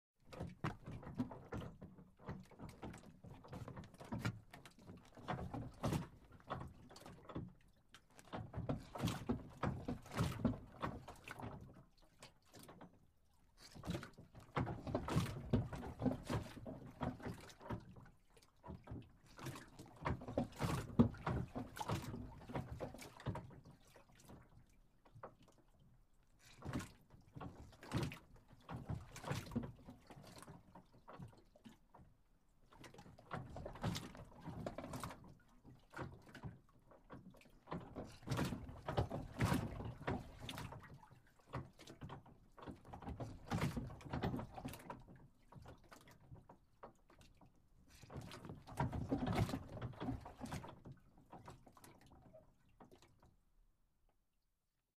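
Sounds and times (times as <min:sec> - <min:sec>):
boat creaking and knocking: 0:08.3 - 0:11.8.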